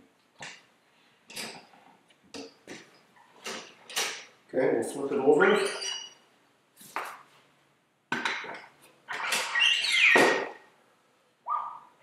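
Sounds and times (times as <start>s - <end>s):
rubbery squeak: 5.4s - 6.2s, 9.1s - 10.6s.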